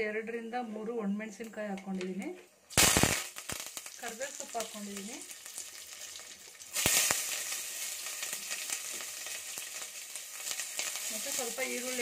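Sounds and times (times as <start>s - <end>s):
hot oil sizzling: 2.7s - 12.0s.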